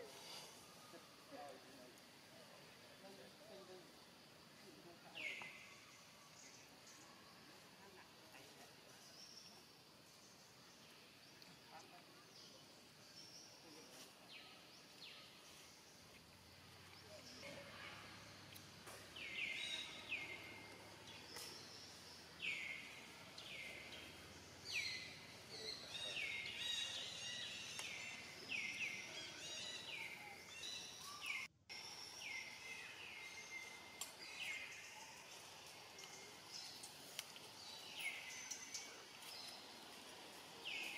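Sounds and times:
birds calling: 18.9 - 40.9.

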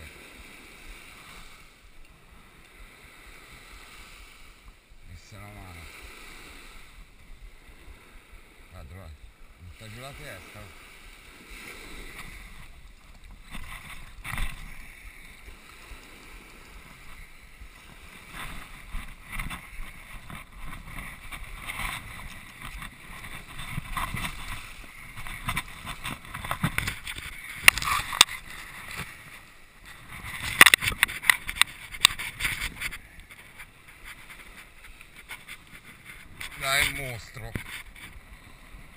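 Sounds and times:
waves washing on beach: 0.0 - 38.9
wind on microphone: 9.3 - 38.9.

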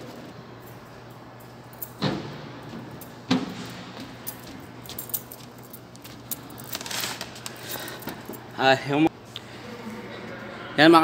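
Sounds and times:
light metallic clinks and jingles: 4.2 - 6.7.

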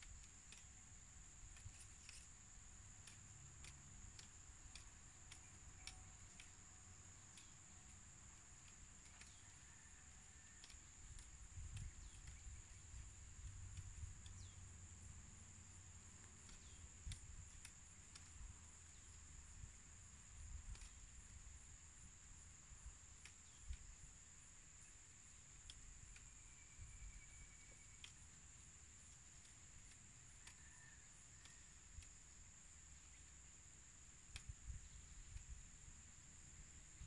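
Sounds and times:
insects droning: 0.0 - 37.0
sharp clicks: 1.4 - 9.4, 16.1 - 19.2.

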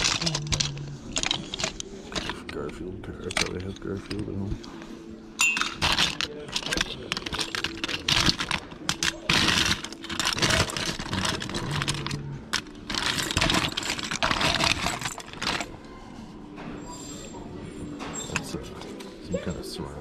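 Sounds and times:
plastic toys clattering: 0.0 - 4.6, 5.4 - 15.8.

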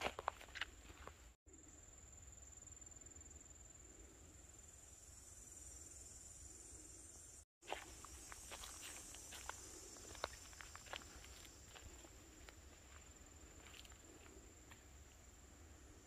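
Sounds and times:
footsteps on dry ground: 0.0 - 1.4, 7.6 - 14.9
insects trilling: 0.1 - 16.0.

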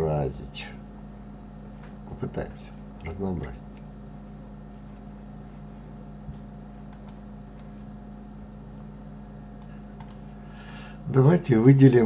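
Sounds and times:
low electrical hum: 0.0 - 12.0
keyboard and mouse clicks: 6.9 - 7.2, 9.6 - 10.2.

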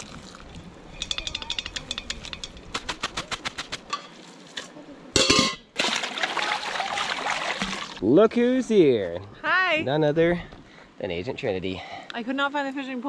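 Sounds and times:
colander rattling against metal pot: 0.9 - 3.1.

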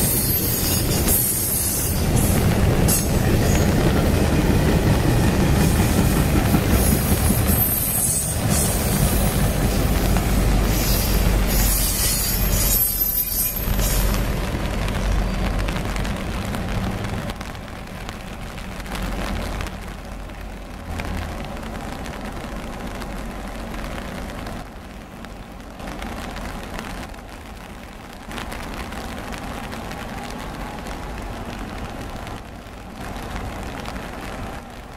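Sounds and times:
freight train rumbling past: 0.0 - 24.9
rain falling: 0.0 - 34.9.

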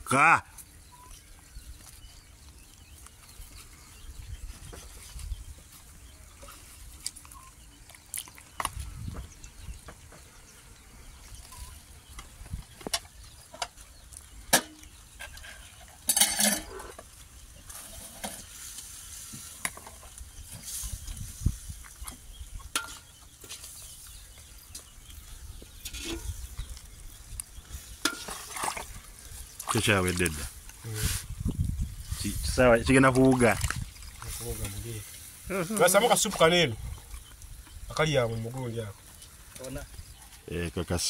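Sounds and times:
wet squelching of fish guts: 28.2 - 30.4.

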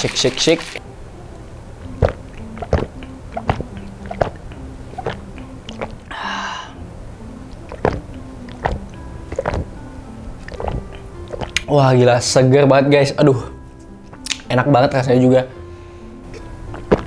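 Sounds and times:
person gulping drink: 2.0 - 6.2, 7.5 - 9.8, 10.4 - 11.7, 16.7 - 17.0.

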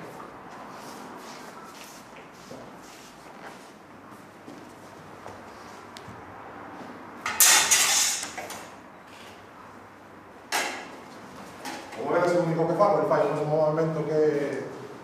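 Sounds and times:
steel swords clashing and scraping: 7.3 - 8.4.

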